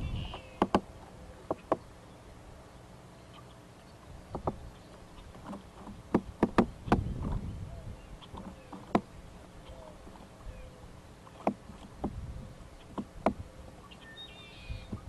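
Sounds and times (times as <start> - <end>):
woodpecker hammering on tree: 0.0 - 1.9, 4.3 - 7.4, 8.2 - 9.3, 11.2 - 13.5.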